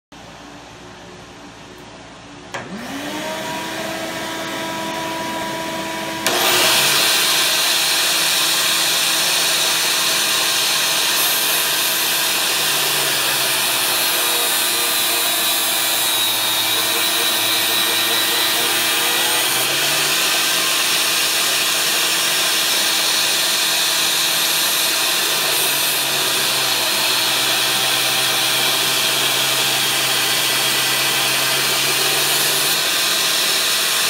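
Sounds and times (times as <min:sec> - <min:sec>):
angle grinder whining: 0:02.5 - 0:34.0
shop vacuum rushing: 0:02.5 - 0:34.0
grinder disc grinding steel blade: 0:02.6 - 0:34.0.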